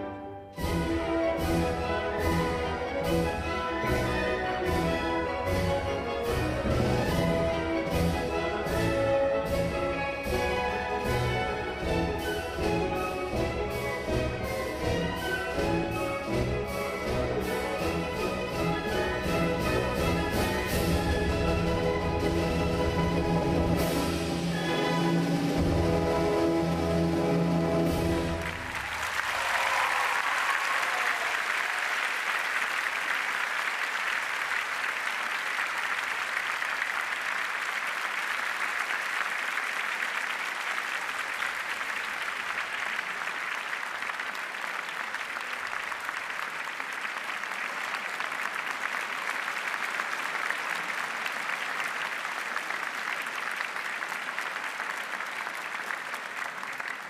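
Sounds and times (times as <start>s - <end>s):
ballet music held chord: 0.0s - 10.0s
audience applause: 24.4s - 57.0s.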